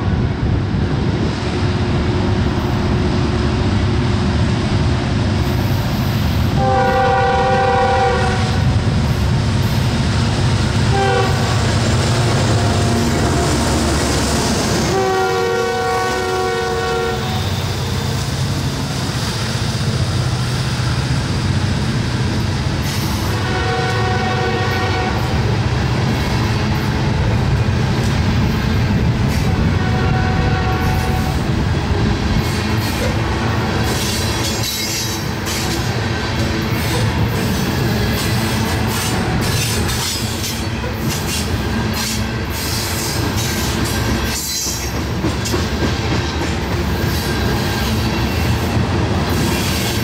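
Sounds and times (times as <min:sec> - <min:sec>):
train rumbling on rails: 0:00.0 - 0:50.0
locomotive horn blasts: 0:06.6 - 0:08.7, 0:10.9 - 0:11.6, 0:14.8 - 0:17.8, 0:23.3 - 0:25.4, 0:29.5 - 0:31.4.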